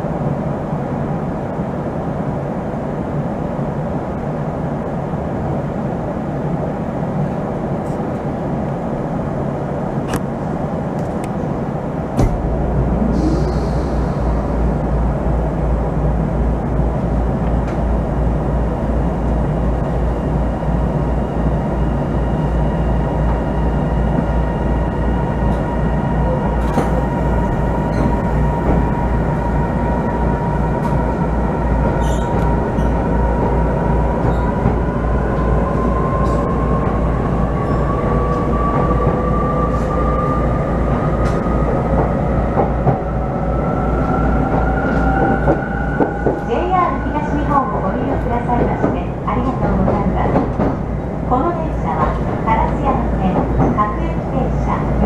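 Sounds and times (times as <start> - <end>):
train running rumble: 0.0 - 55.0
train whine rising in pitch: 12.6 - 15.6.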